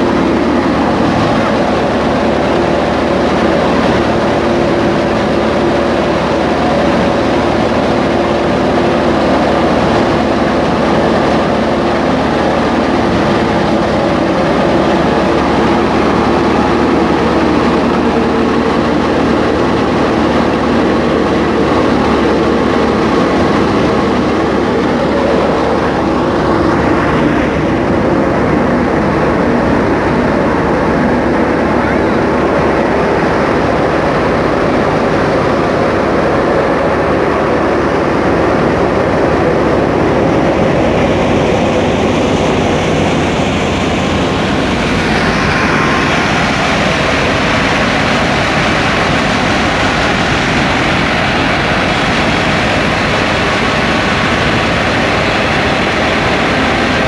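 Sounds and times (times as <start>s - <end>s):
wheat thresher mechanical drone: 0.0s - 57.0s.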